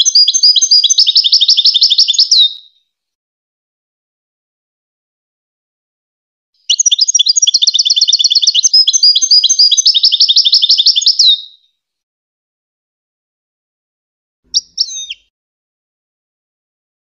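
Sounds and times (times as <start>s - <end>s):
goldfinch singing trills: 0.0s - 2.6s, 6.7s - 11.6s, 14.5s - 15.3s.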